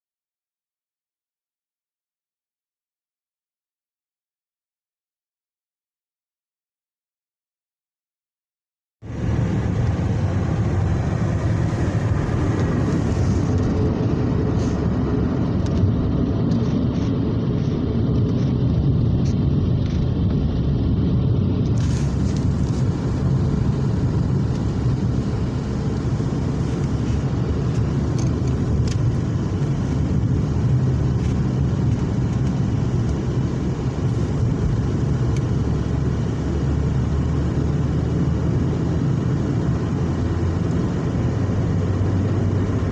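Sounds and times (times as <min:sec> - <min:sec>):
car cabin road rumble: 0:09.0 - 0:42.9.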